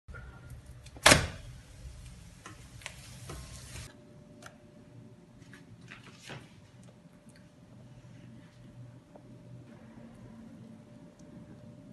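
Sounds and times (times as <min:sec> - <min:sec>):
low steady rumble: 0:07.4 - 0:11.9.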